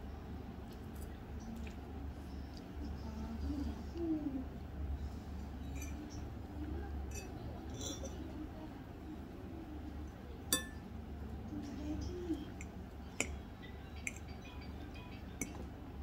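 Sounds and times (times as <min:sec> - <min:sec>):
low steady hum: 0:00.0 - 0:16.0
forks clinking on steel bowl: 0:07.1 - 0:08.2, 0:10.5 - 0:10.8.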